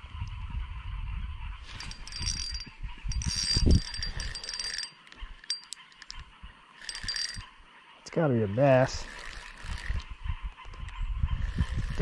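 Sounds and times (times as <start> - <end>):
fishing reel whirring: 1.7 - 7.6, 8.7 - 12.0.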